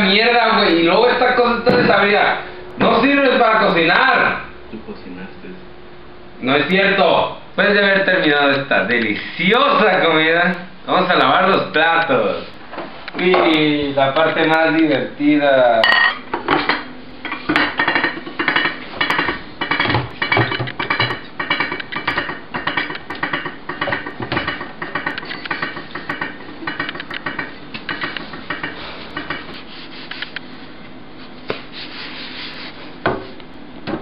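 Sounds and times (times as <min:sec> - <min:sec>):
faint steady hum: 0:00.0 - 0:34.0
dishes clattering in a steel sink: 0:15.8 - 0:29.5
sponge scrubbing: 0:28.8 - 0:30.2, 0:31.2 - 0:33.0.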